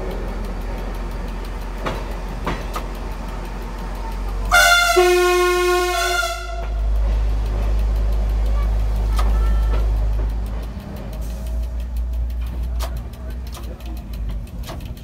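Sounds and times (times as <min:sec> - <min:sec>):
railcar engine drone: 0:00.0 - 0:15.0
railcar horn: 0:04.5 - 0:06.9.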